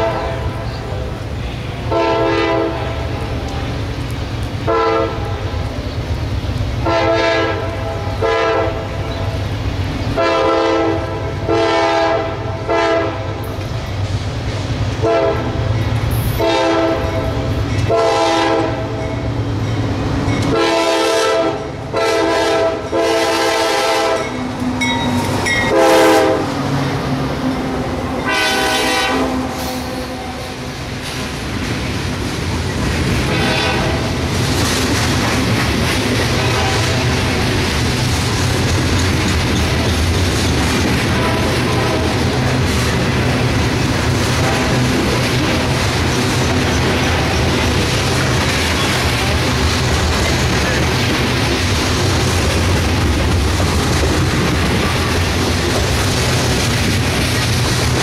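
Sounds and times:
train air horn blasts: 0:00.0 - 0:01.1, 0:01.8 - 0:03.1, 0:04.6 - 0:05.4, 0:06.8 - 0:08.9, 0:10.2 - 0:13.4, 0:15.0 - 0:15.6, 0:16.3 - 0:19.0, 0:20.5 - 0:26.6, 0:28.1 - 0:30.7, 0:33.3 - 0:34.2, 0:36.3 - 0:37.3, 0:41.0 - 0:42.4, 0:44.3 - 0:45.0
diesel locomotive engine rumble: 0:00.0 - 0:58.0
hopper cars rolling by: 0:29.2 - 0:58.0.

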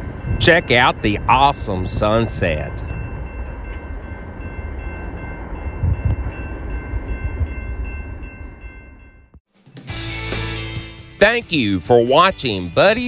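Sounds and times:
distant freight train rumbling: 0:00.0 - 0:09.4.

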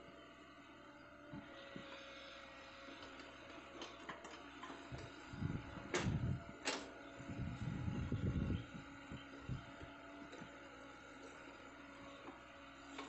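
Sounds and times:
faint excavator engine hum: 0:00.0 - 0:13.0.

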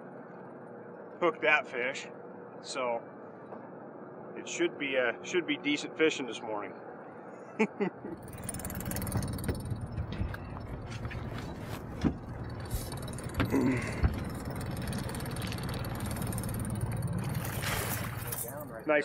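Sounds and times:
outboard motor running: 0:08.2 - 0:19.0.

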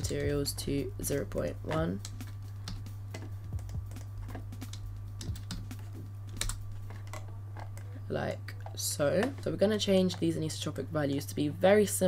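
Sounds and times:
steady low hum: 0:00.0 - 0:12.0
keyboard typing: 0:01.4 - 0:07.8.

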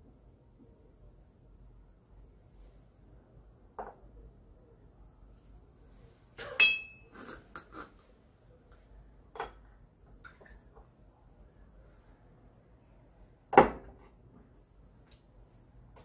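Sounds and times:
glass clink with ring: 0:06.5 - 0:07.1, 0:09.4 - 0:09.6
glasses and bottles knocking: 0:06.6 - 0:07.0.

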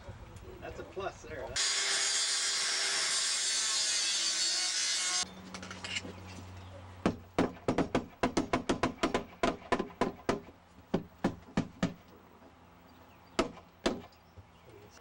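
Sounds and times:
hammer striking wood: 0:07.0 - 0:12.0, 0:13.4 - 0:14.1.

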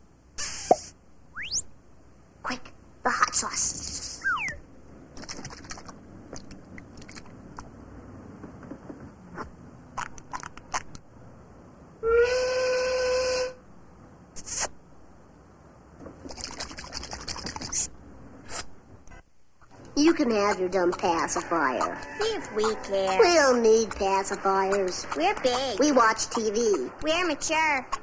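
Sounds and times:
cartoon steam whistle: 0:12.0 - 0:13.6.

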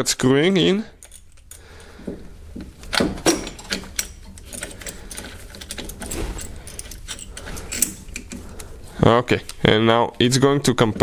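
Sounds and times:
metallic clicks and clinks: 0:00.5 - 0:01.8, 0:02.9 - 0:08.7.

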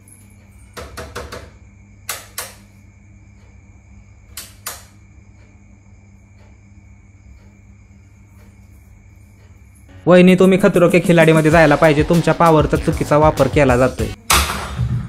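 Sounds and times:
light switch clicks: 0:04.4 - 0:05.0.

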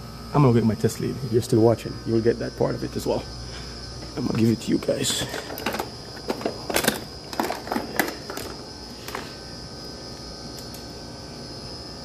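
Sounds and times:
faint steady hum: 0:00.0 - 0:12.0
tools clattering in plastic toolbox: 0:05.2 - 0:08.5.

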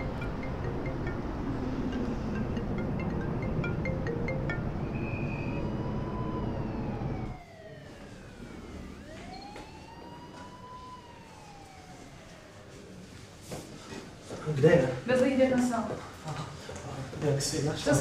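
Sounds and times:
emergency siren wailing: 0:00.0 - 0:13.5.

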